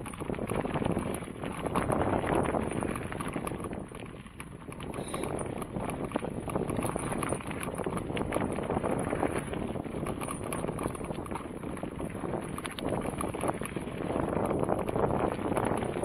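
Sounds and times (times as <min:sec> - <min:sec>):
bike rattling and clicking: 0:00.0 - 0:16.0
wind on microphone: 0:00.0 - 0:16.0.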